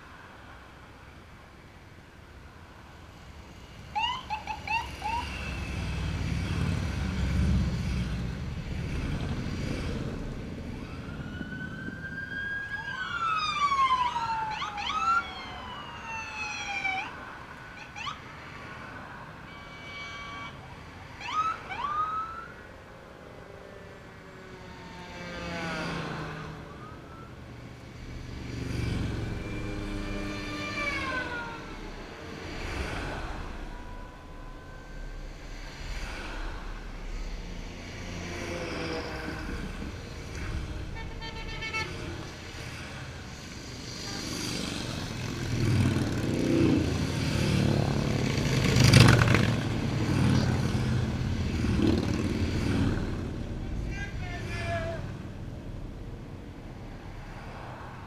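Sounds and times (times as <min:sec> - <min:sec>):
vehicle engines rumbling by: 0:00.0 - 0:58.0
police siren chirps and wails: 0:03.9 - 0:05.9, 0:10.7 - 0:17.2, 0:17.8 - 0:18.3, 0:19.5 - 0:22.7.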